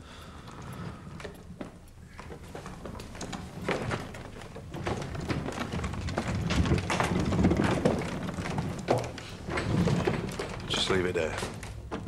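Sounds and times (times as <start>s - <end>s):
footsteps of people: 0.0s - 12.0s.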